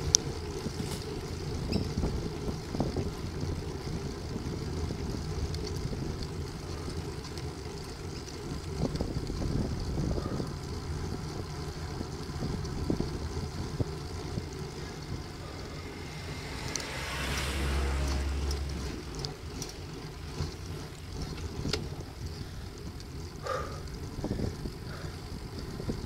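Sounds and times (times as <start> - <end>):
wind rumble on microphone: 0.0 - 26.0
car passing: 13.1 - 23.8.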